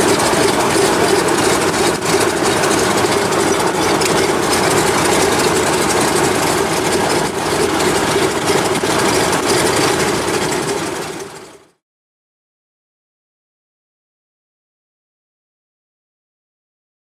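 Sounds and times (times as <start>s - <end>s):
aircraft radial engines running: 0.0s - 11.8s.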